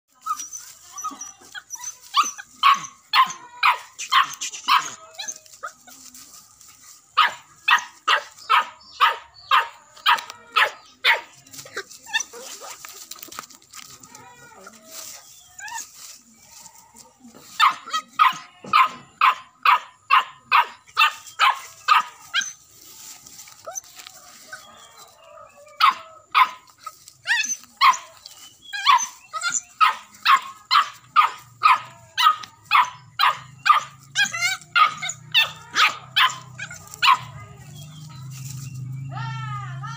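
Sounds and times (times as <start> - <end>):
dog barking: 7.2 - 11.3, 17.6 - 22.2, 25.8 - 26.6, 29.8 - 37.3.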